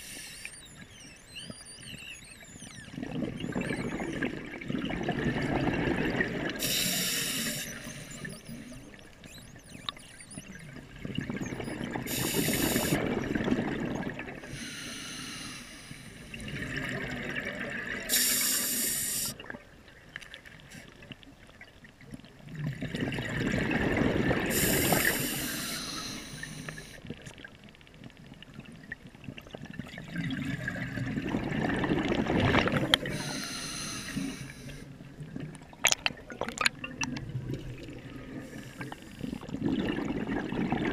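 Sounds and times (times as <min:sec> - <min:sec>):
exhaled bubbles burbling: 0:00.6 - 0:14.5, 0:16.3 - 0:18.1, 0:22.4 - 0:25.5, 0:28.5 - 0:33.4, 0:35.0 - 0:40.9
regulator inhale hiss: 0:06.6 - 0:08.2, 0:12.1 - 0:13.0, 0:14.5 - 0:16.4, 0:18.1 - 0:19.4, 0:24.5 - 0:27.0, 0:33.1 - 0:34.9.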